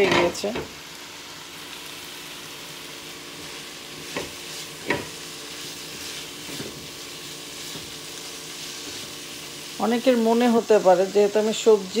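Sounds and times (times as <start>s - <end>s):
food sizzling in oil: 0.0s - 12.0s
spatula stirring in a wok: 3.2s - 10.0s.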